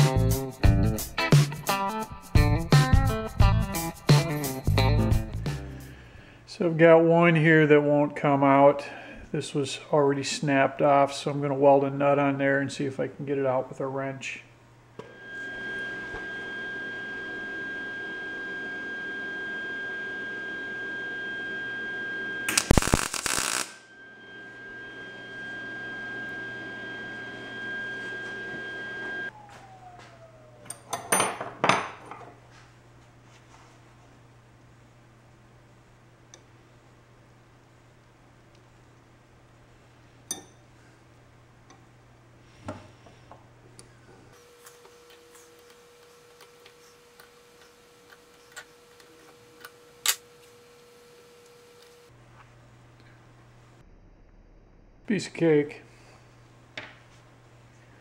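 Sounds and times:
steady high whine: 14.9s - 31.4s
low hum: 15.0s - 31.1s, 45.0s - 58.0s
welder arc crackling: 22.2s - 28.2s, 44.4s - 52.1s.

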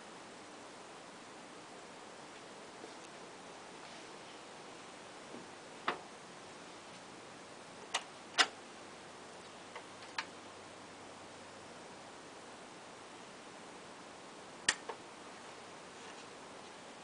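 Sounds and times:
faint steady hiss: 0.0s - 17.0s.

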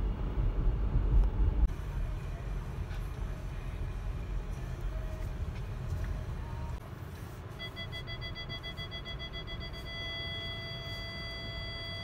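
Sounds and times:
car engine and tyre rumble: 0.0s - 12.0s
parking sensor beeping: 7.6s - 12.0s.

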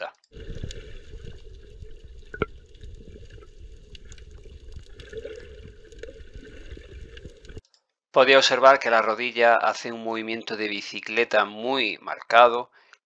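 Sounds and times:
underwater churning and bubbling: 0.3s - 7.6s.

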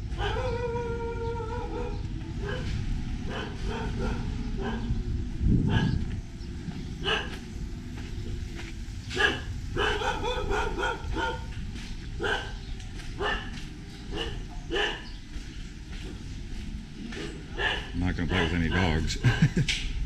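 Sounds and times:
dog barking and yelping: 0.0s - 5.0s, 5.7s - 6.1s, 7.0s - 7.4s, 9.2s - 11.5s, 12.2s - 12.6s, 13.2s - 15.1s, 17.1s - 19.4s
steady low rumble: 1.8s - 20.0s.

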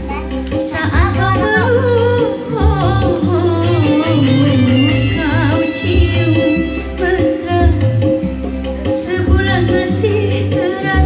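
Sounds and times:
backing track with bass beat: 0.0s - 11.0s
woman singing into microphone: 0.4s - 11.0s.

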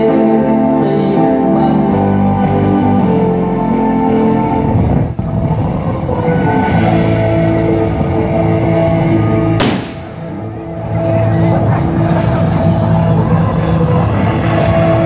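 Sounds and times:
music with long held notes: 0.0s - 15.0s
sharp crack: 9.6s - 10.4s.

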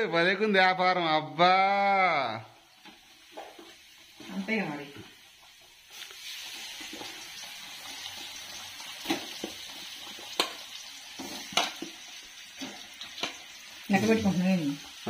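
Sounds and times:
fish frying in hot oil: 1.7s - 15.0s.

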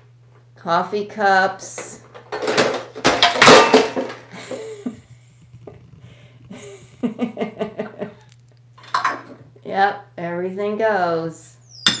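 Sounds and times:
plastic toys clattering on floor: 2.1s - 4.6s.

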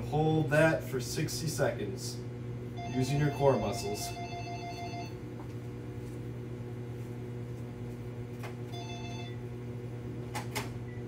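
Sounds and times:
steady low hum: 0.0s - 11.0s
electronic alert tone: 2.8s - 5.2s.

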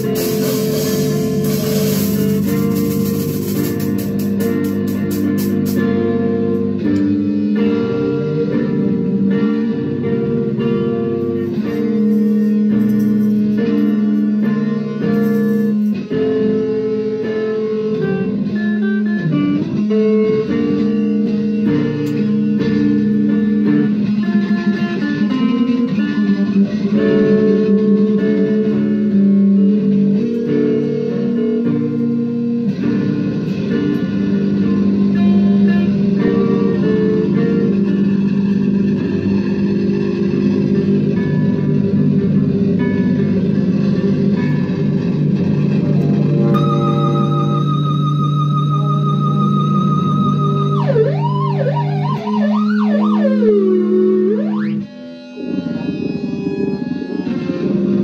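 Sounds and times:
steady low drone: 0.0s - 16.0s, 37.2s - 58.0s
droning electric guitar: 0.0s - 58.0s.

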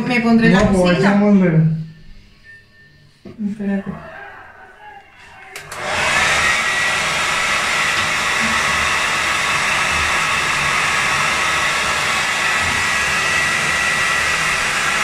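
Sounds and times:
hair dryer blowing: 5.3s - 15.0s.

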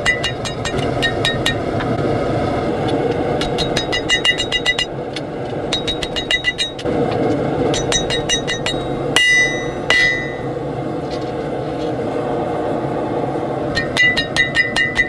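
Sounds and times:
hammer striking steel on anvil: 0.0s - 1.7s, 3.4s - 6.9s, 7.7s - 10.5s, 13.7s - 15.0s.

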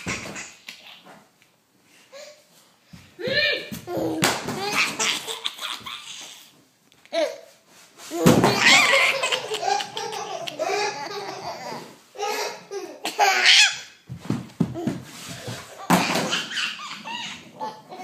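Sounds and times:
toddler laughing: 3.9s - 6.5s, 8.2s - 13.9s, 15.4s - 18.0s.

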